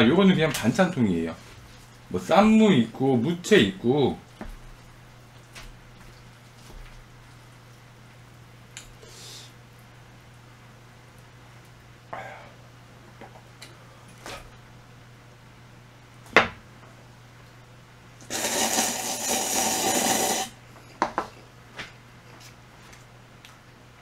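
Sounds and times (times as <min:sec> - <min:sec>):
close-miked eating sounds: 0:00.2 - 0:10.1.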